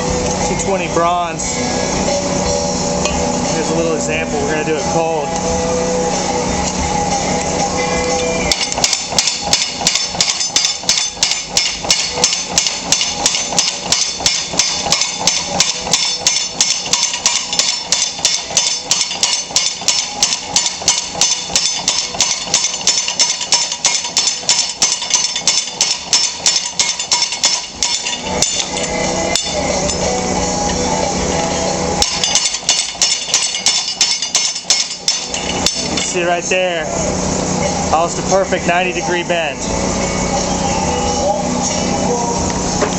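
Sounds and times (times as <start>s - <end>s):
steady machine hum: 0.0s - 42.9s
trip hammer blows on metal: 8.0s - 36.9s.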